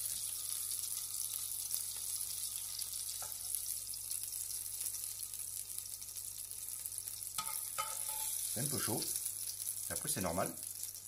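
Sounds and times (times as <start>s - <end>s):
tomatoes sizzling in frying pan: 0.0s - 11.0s
spoon clinking: 7.4s - 8.4s.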